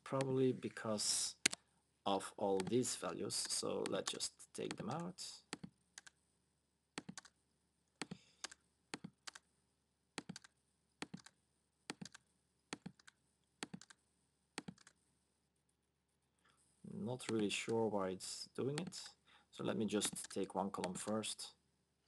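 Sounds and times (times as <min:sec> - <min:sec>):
keyboard and mouse clicks: 0:02.6 - 0:06.2, 0:07.0 - 0:07.4, 0:08.0 - 0:09.4, 0:10.2 - 0:14.0, 0:14.6 - 0:15.0, 0:17.2 - 0:17.8, 0:18.7 - 0:19.1, 0:20.0 - 0:21.3.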